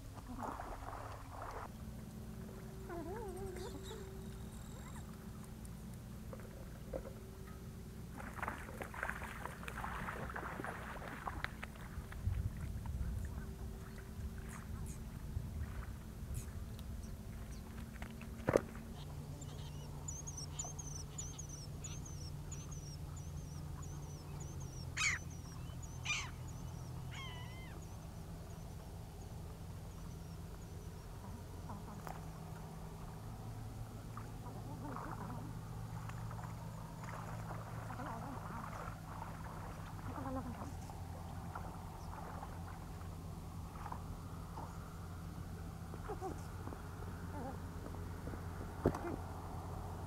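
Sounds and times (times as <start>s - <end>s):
steady low hum: 0.0s - 50.0s
birds chirping: 18.8s - 32.4s
harsh bird calls: 19.0s - 28.0s.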